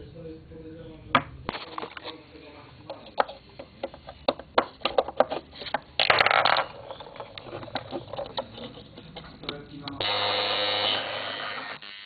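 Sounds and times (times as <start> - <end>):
handling clicks and knocks: 2.9 - 10.0.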